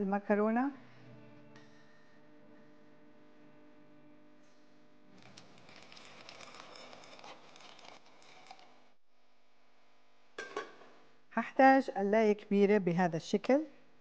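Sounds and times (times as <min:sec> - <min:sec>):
pasta pieces pattering into pot: 0:05.2 - 0:08.9.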